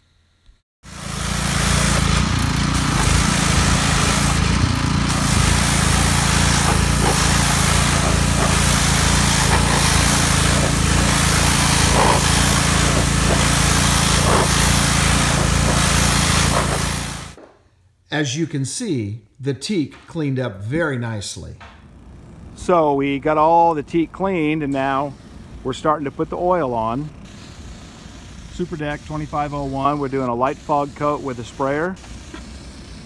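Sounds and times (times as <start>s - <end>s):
pressure washer motor drone: 0.8s - 17.4s, 21.9s - 33.0s
water jet hissing: 0.9s - 17.4s, 24.4s - 33.0s.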